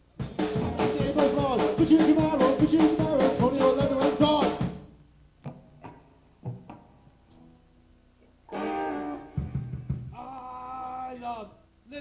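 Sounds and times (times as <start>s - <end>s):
busy drums: 0.0s - 7.0s, 8.5s - 11.2s
live rock band playing: 0.2s - 4.8s, 8.5s - 10.2s
person singing: 0.6s - 4.6s
faint plucked notes: 5.4s - 10.2s.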